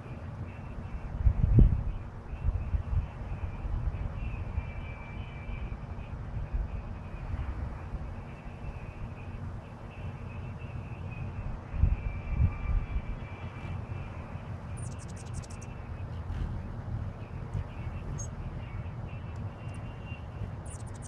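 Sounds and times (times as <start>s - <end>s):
steady low rumble: 0.0s - 21.0s
hummingbird chips: 14.8s - 15.7s, 20.6s - 21.0s.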